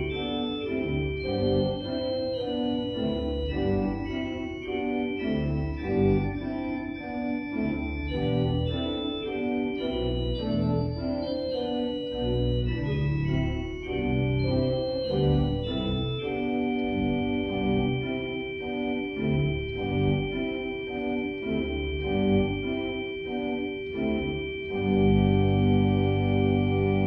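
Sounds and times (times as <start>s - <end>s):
organ playing slow chords: 0.0s - 27.0s.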